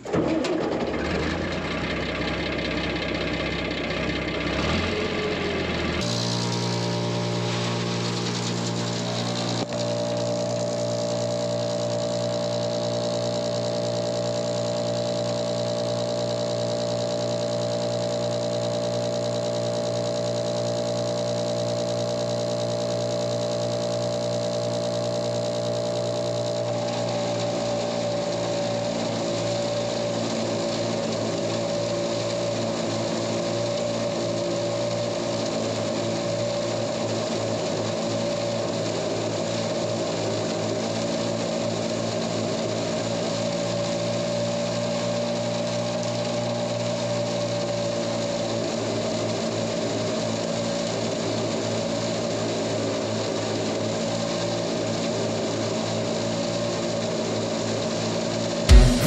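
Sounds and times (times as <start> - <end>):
tractor engine idling: 0.0 - 33.7
high machine whine: 4.8 - 52.6, 54.0 - 59.0.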